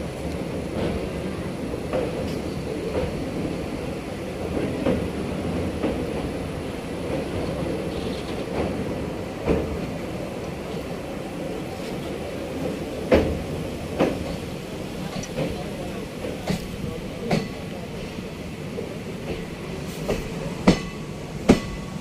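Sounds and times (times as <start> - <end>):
train rumbling on rails: 0.0 - 22.0.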